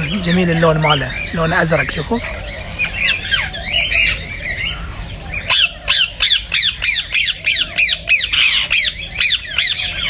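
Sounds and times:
parakeet screeching calls: 0:00.0 - 0:10.0.

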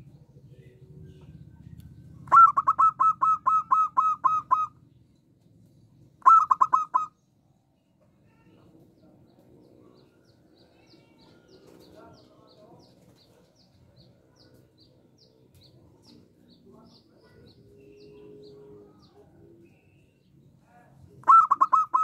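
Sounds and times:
dove calling short notes: 0:02.2 - 0:04.8, 0:06.2 - 0:07.2, 0:21.2 - 0:22.0.

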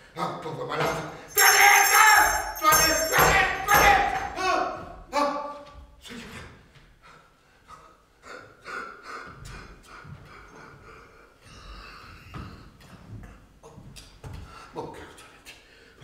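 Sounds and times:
man breathing heavily: 0:06.9 - 0:13.6, 0:14.3 - 0:14.8.

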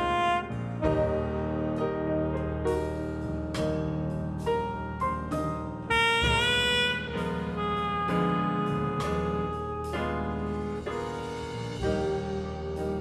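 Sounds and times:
piano chords: 0:00.0 - 0:13.0
saxophone holding a note: 0:05.9 - 0:10.0.

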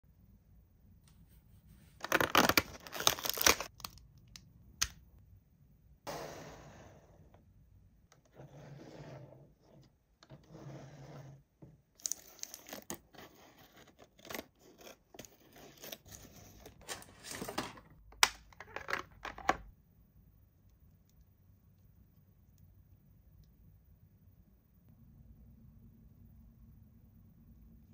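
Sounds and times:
packaging tearing: 0:02.0 - 0:04.0, 0:12.0 - 0:13.0
packaging crinkling and clicking: 0:02.0 - 0:04.9.

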